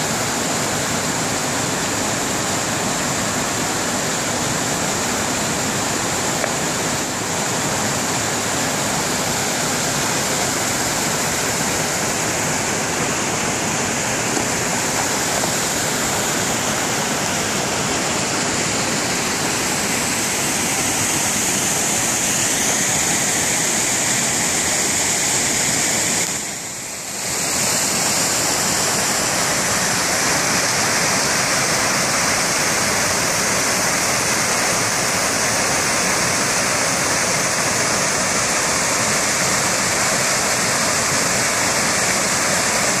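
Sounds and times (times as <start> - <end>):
waterfall rushing over rocks: 0.0 - 43.0.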